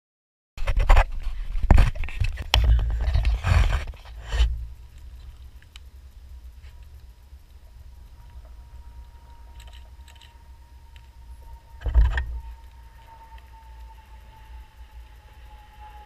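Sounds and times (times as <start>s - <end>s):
boat engines rumbling: 4.4s - 16.0s.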